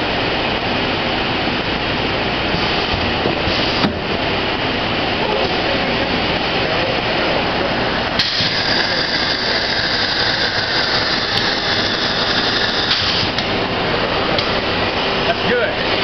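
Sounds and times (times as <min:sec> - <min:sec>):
factory machinery running: 0:00.0 - 0:16.0
high-pitched whine: 0:04.5 - 0:15.8.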